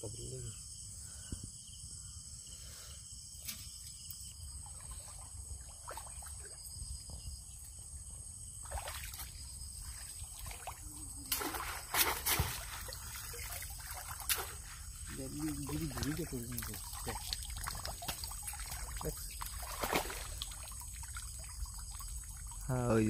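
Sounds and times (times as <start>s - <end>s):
insect chirring: 0.0s - 23.0s
water splashes: 4.5s - 6.8s, 8.6s - 23.0s
shallow water sloshing: 8.6s - 23.0s.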